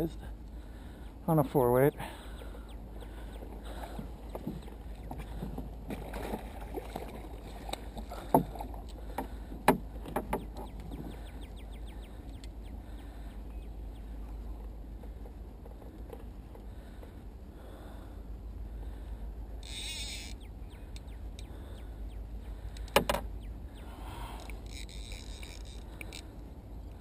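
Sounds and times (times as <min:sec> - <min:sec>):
water sloshing around paddle: 0:03.2 - 0:11.4
faint ticks: 0:19.6 - 0:21.6, 0:24.3 - 0:27.0.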